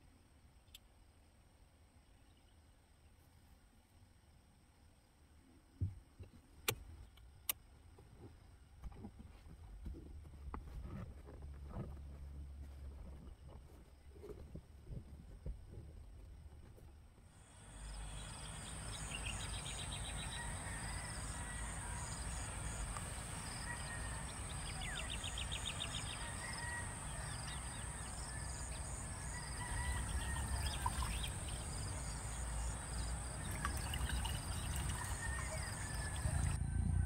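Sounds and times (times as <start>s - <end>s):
birds chirping and trilling: 17.7s - 36.6s
water pouring into a mug: 30.2s - 31.3s, 33.4s - 36.6s.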